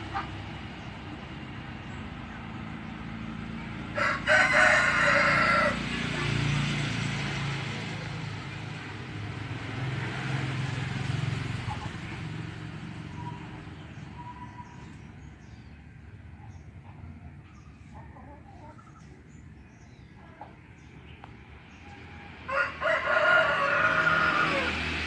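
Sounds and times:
motor vehicle passing: 0.0s - 25.0s
rooster crowing: 4.0s - 5.8s, 22.1s - 24.9s.

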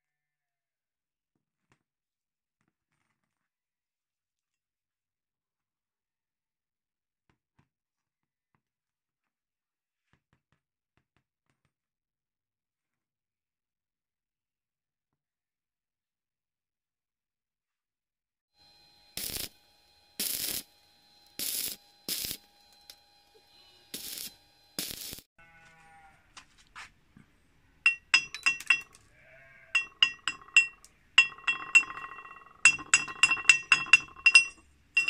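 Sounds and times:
short bursts of noise: 18.7s - 25.3s.

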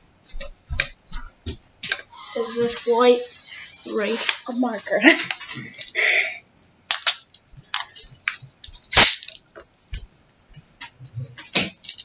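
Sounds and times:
small objects clicking and tapping: 5.2s - 6.0s, 6.9s - 10.0s, 10.8s - 12.0s.

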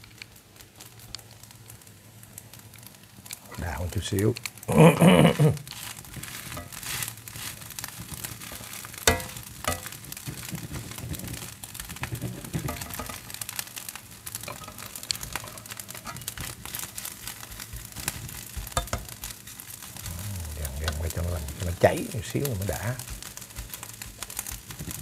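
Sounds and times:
rice sizzling in a wok: 0.0s - 25.0s
metal spatula scraping wok: 5.7s - 11.4s, 12.0s - 13.5s, 14.4s - 17.4s.

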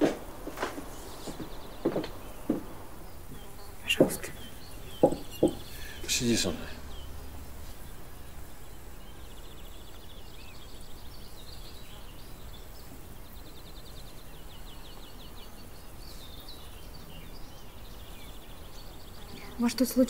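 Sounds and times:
steady hiss: 0.0s - 20.0s
bird chattering trill: 3.4s - 8.3s.

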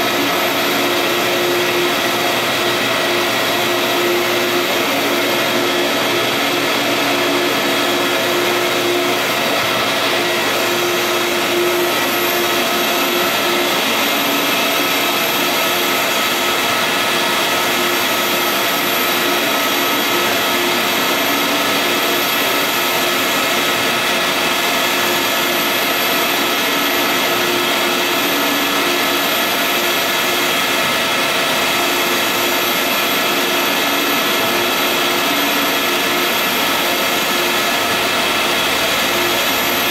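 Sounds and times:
printer fans and blowers whirring: 0.0s - 39.9s.

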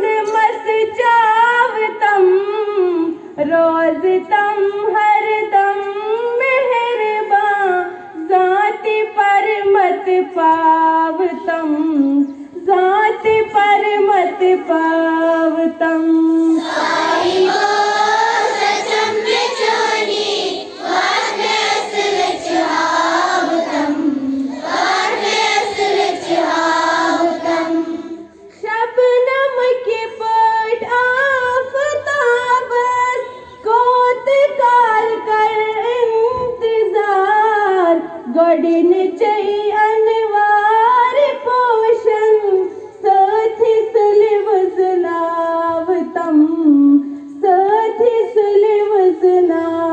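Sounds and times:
children singing in chorus: 16.3s - 28.4s.

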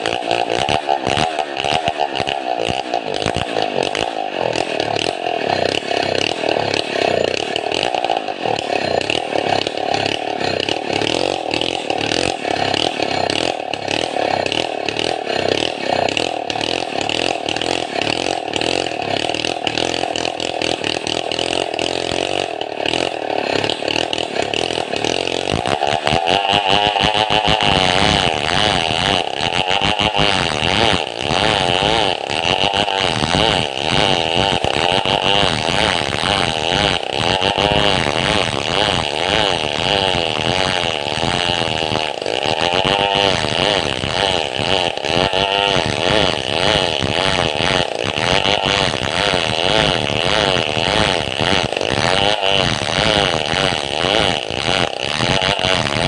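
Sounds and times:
chainsaw cutting log: 0.0s - 56.0s.

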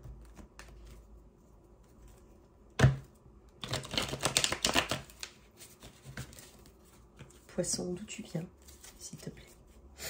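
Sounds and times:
cards snapping: 3.6s - 5.4s.

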